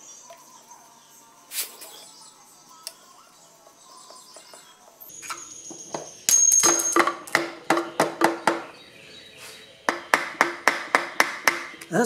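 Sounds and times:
screwdriver knocking on metal: 5.8 - 8.7, 9.9 - 11.8.

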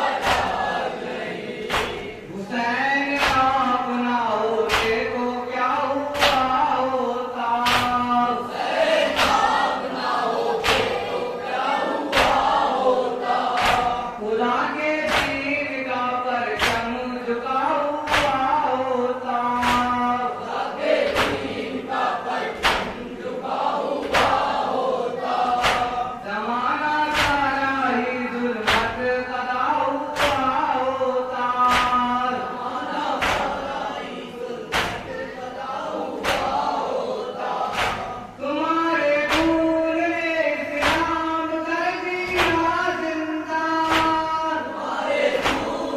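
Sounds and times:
men chanting in unison: 0.0 - 45.9
hands slapping chests: 1.6 - 2.1, 4.7 - 5.0, 7.6 - 8.0, 10.5 - 11.1, 21.1 - 21.6, 22.6 - 23.1, 25.5 - 26.0, 33.2 - 33.7, 36.2 - 36.8, 37.7 - 38.2, 43.8 - 44.2, 45.3 - 45.9.

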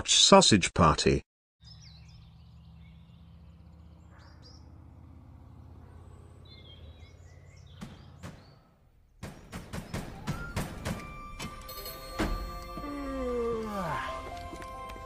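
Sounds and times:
birds chirping: 1.6 - 15.0
sharp knocks: 7.7 - 12.6
clacks and thumps: 9.2 - 12.4.

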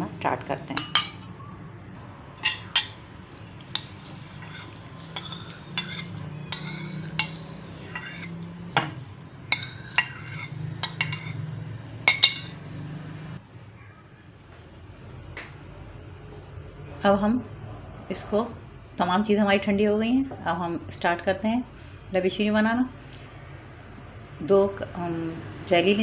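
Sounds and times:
low steady hum: 0.0 - 12.5
metal spoon clinking on ceramic bowls: 0.7 - 1.4, 2.4 - 11.5, 12.1 - 12.6.

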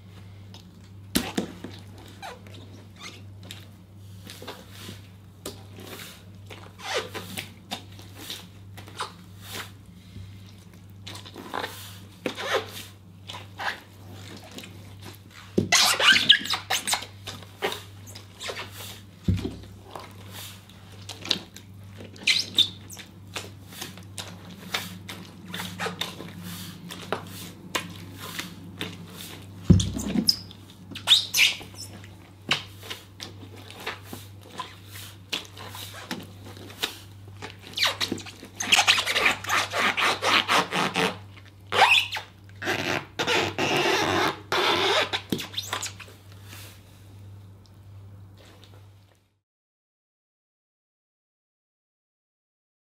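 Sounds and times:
boots squishing grapes: 3.4 - 39.6
boot stamping thumps: 29.7 - 30.3.

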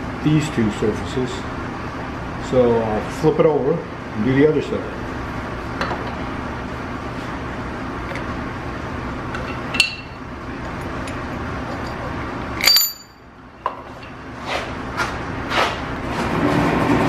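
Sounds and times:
steady low hum: 0.0 - 17.0
metal clamp parts clinking: 12.6 - 13.2.

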